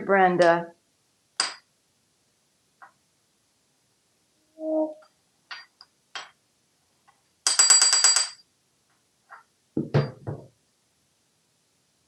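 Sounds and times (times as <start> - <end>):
metal spoon tapping countertop: 1.4 - 1.6.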